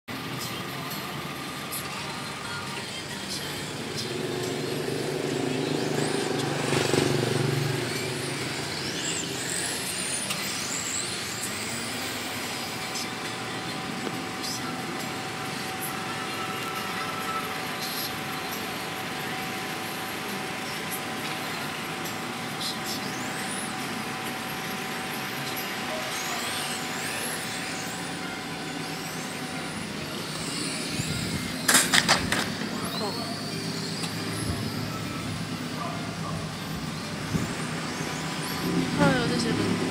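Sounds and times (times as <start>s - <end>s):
radio-controlled car motors whining: 0.1s - 39.9s.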